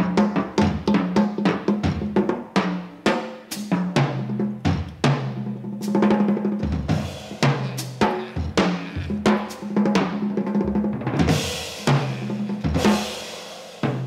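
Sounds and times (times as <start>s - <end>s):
jazz drum kit: 0.0s - 14.0s.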